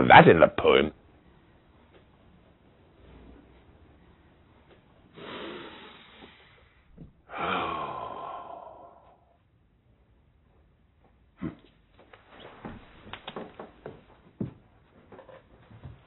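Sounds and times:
man sighing: 7.3 - 9.4.

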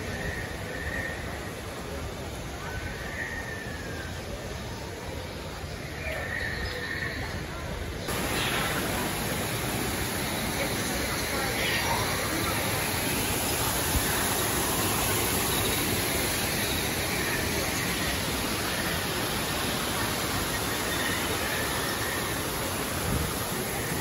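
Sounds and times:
waterfall rushing over rocks: 7.9 - 24.0.

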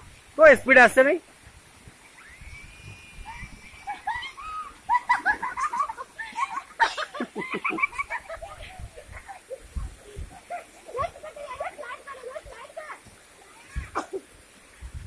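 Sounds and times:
high voices squealing and shouting: 2.1 - 4.8.

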